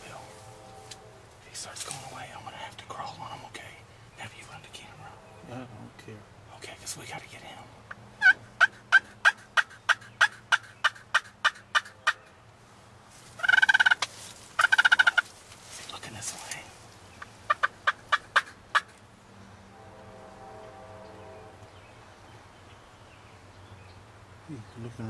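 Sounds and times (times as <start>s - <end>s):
turkey yelps: 8.2s - 12.2s, 13.4s - 15.2s, 17.2s - 19.0s
turkey gobbles: 13.4s - 15.3s.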